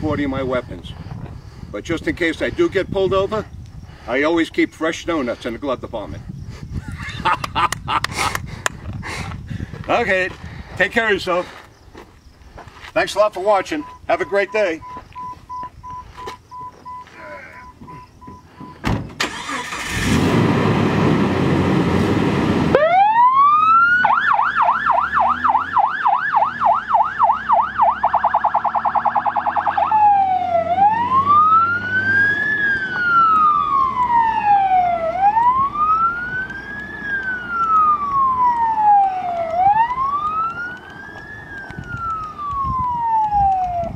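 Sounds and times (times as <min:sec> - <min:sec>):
electronic siren yelp and wail: 0:22.7 - 0:43.9.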